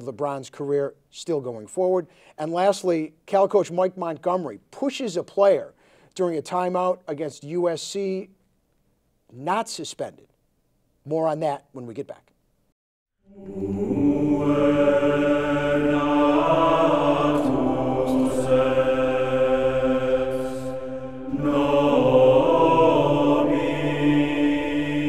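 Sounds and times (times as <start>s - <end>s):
droning chant-like music: 13.3s - 25.0s.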